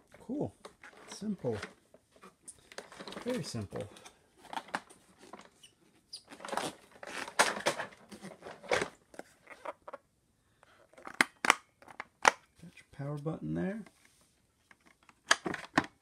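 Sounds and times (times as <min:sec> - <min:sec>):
packaging rustling and crinkling: 0:00.7 - 0:05.6, 0:06.3 - 0:10.0.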